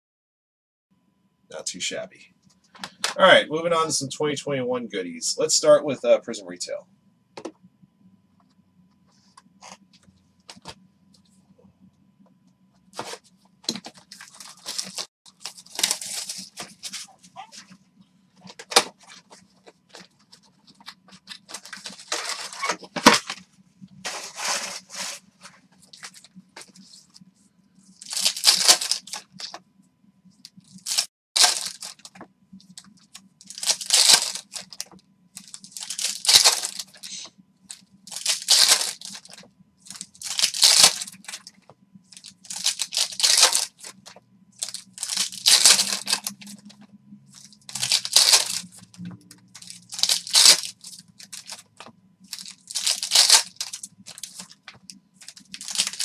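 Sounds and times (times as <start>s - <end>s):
foil wrappers tearing: 13.8s - 17.1s, 20.8s - 23.4s, 28.0s - 29.6s, 30.8s - 32.2s, 33.4s - 37.3s, 38.1s - 41.5s, 42.2s - 46.6s, 47.3s - 48.8s, 49.6s - 51.7s, 52.3s - 56.0s.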